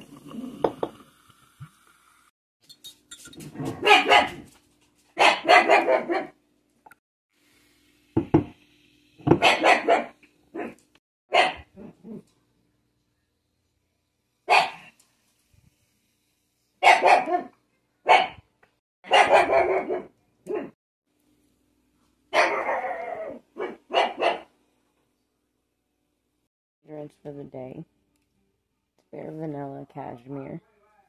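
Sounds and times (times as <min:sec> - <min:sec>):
dog barking: 0:03.6 - 0:04.5, 0:05.2 - 0:06.4, 0:09.3 - 0:12.0, 0:14.5 - 0:14.9, 0:16.8 - 0:18.4, 0:19.0 - 0:20.8, 0:22.3 - 0:24.5.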